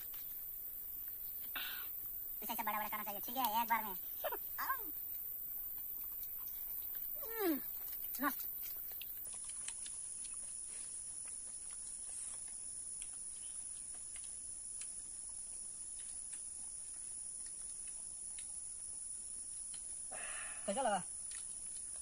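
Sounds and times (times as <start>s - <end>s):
faint small ticks: 4.9s - 20.1s, 20.7s - 22.0s.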